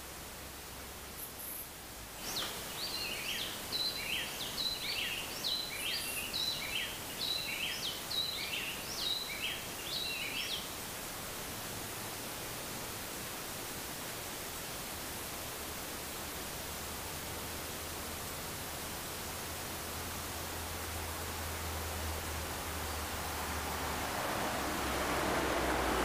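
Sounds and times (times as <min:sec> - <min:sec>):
forest ambience hiss: 0:00.0 - 0:26.0
songbird singing whistled notes: 0:02.2 - 0:10.7.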